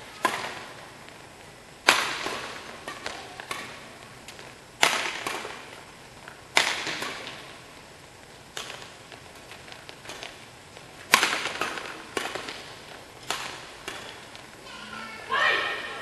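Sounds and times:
racket hitting shuttlecock: 0:00.2 - 0:00.7, 0:01.8 - 0:07.5, 0:08.5 - 0:09.0, 0:11.0 - 0:14.4.

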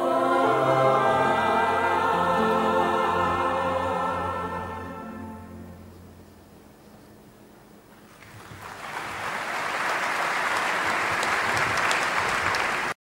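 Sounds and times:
large audience applauding: 0:08.1 - 0:13.0.

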